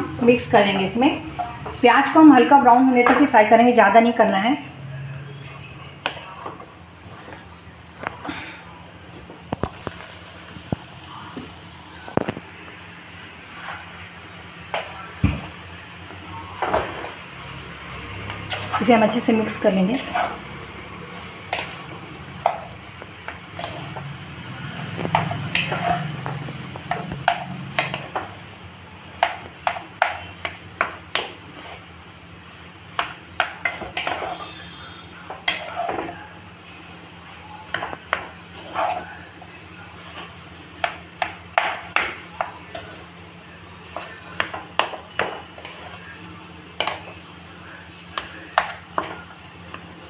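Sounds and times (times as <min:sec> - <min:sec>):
spatula knocking and scraping pan: 0:18.2 - 0:24.2, 0:24.8 - 0:28.4, 0:29.2 - 0:31.8, 0:32.9 - 0:36.2, 0:37.7 - 0:39.1, 0:40.0 - 0:43.0, 0:43.9 - 0:45.9.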